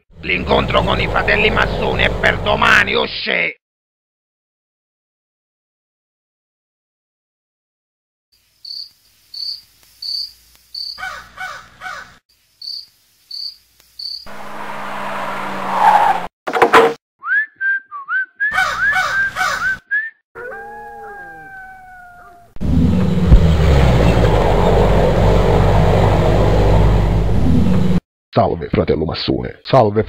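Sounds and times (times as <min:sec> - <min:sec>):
crickets chirping: 0:08.4 - 0:11.2, 0:12.3 - 0:14.9.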